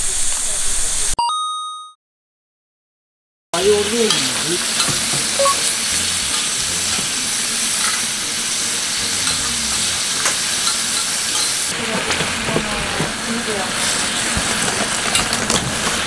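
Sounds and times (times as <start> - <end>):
pork sizzling on griddle: 3.6 - 16.0
metal tongs tapping plate: 9.2 - 11.6.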